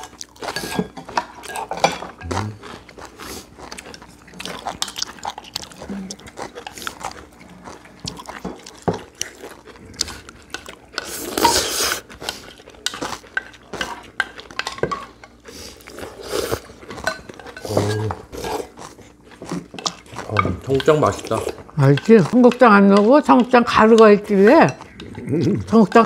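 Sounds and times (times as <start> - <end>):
cutlery clinking against bowls: 0.4 - 2.8, 10.5 - 15.4, 16.6 - 18.8, 19.4 - 26.0.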